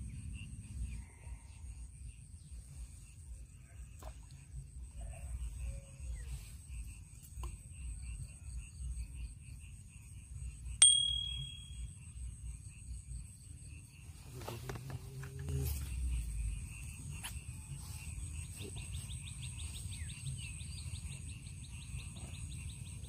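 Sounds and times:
insects chirping: 0.0 - 23.0
small metal bell ding: 10.8 - 12.0.

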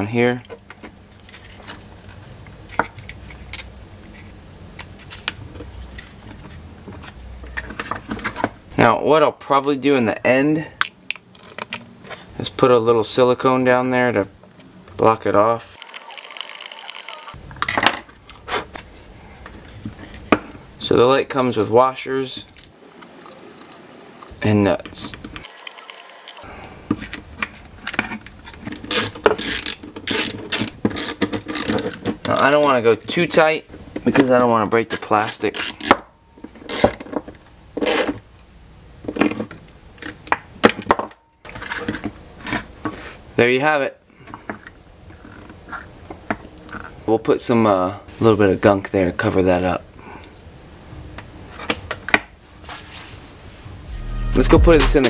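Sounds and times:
high-pitched whine: 23.2 - 27.2, 53.7 - 55.0.

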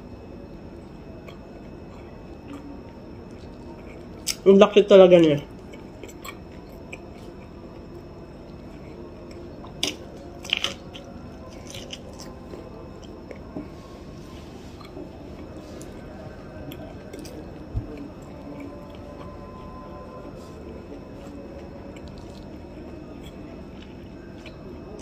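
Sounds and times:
wet chewing of corn: 5.5 - 25.0.

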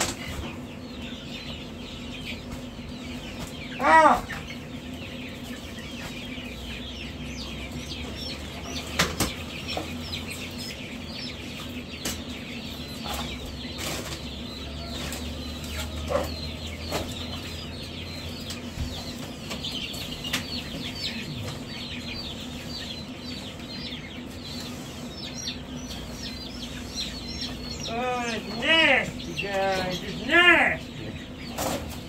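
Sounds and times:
knocks from cages: 0.0 - 1.6, 5.7 - 22.8, 31.0 - 32.0
baby chicks peeping: 0.0 - 32.0
steady low hum: 0.0 - 32.0.

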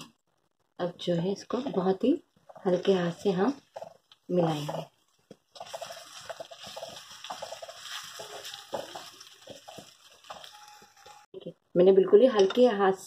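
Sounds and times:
spatula stirring thick curry: 1.4 - 11.3.

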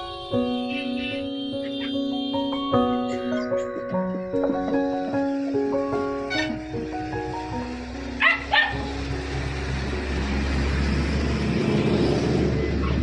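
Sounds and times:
plucked-string background music: 0.0 - 11.4
passing truck engine and tyres: 0.0 - 13.0
puppy yelping: 8.2 - 8.8.

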